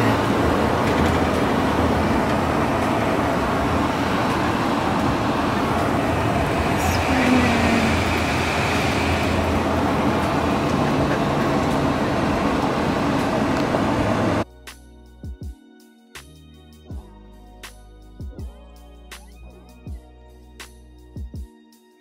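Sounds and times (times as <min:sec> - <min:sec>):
tyre and engine drone: 0:00.0 - 0:14.4.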